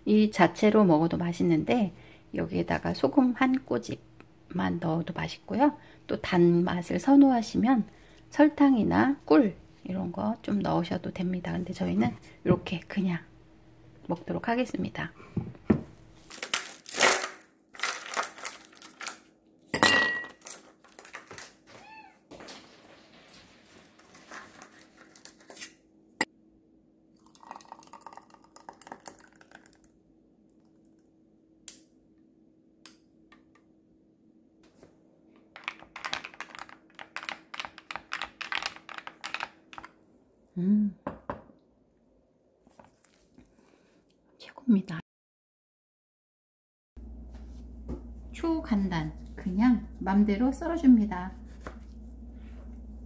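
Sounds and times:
juice pouring over ice: 0:27.2 - 0:29.9.

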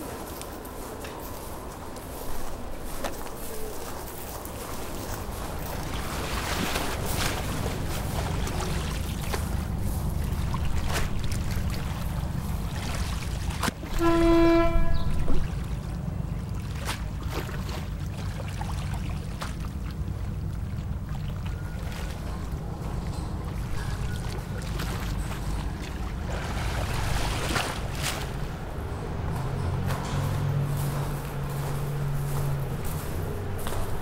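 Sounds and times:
horn note: 0:13.9 - 0:15.4.

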